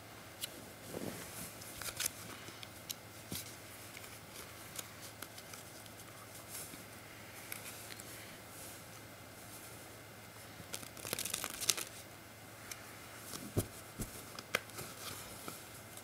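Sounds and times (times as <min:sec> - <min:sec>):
faint steady hum: 0:00.0 - 0:16.0
playing cards clicking: 0:10.7 - 0:11.9.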